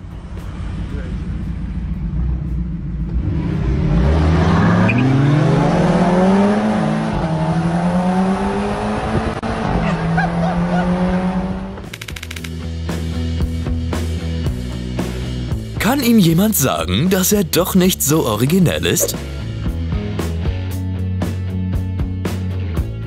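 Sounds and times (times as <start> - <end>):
car engine accelerating: 0.0 - 11.9.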